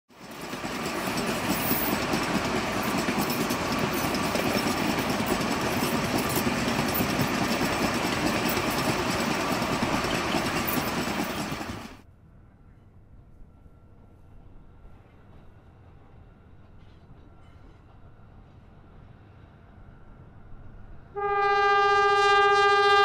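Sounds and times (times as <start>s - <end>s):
train wheels clicking over rail joints: 0.1s - 12.0s
rumble and rattle of rail wagons: 0.1s - 21.1s.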